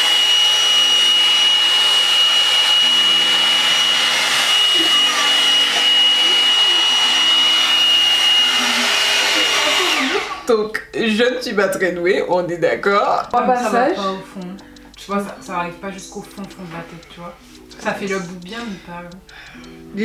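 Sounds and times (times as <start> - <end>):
high fan whine: 0.0 - 10.4
hot air brush blowing: 0.0 - 10.5.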